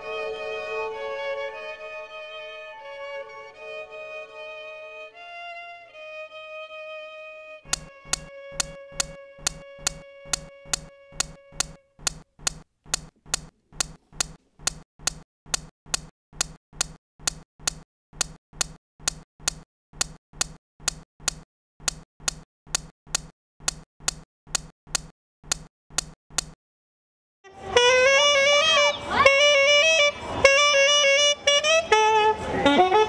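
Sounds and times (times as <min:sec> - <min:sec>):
held violin note: 0:00.0 - 0:11.9, 0:27.5 - 0:33.0.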